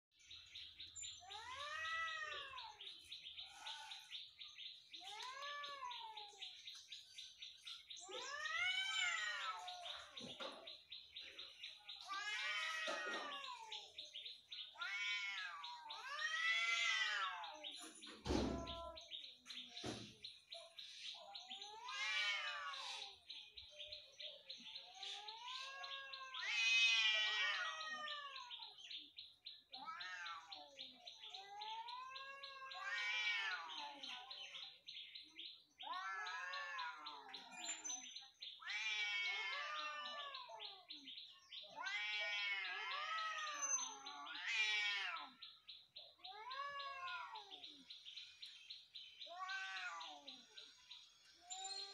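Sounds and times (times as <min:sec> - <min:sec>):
cats yowling: 0:01.2 - 0:04.1, 0:05.0 - 0:06.6, 0:08.0 - 0:10.6, 0:11.7 - 0:17.6, 0:18.2 - 0:19.1, 0:21.1 - 0:23.3, 0:24.2 - 0:34.8, 0:35.7 - 0:37.6, 0:38.6 - 0:47.9, 0:49.2 - 0:51.9
thump: 0:18.2 - 0:18.7.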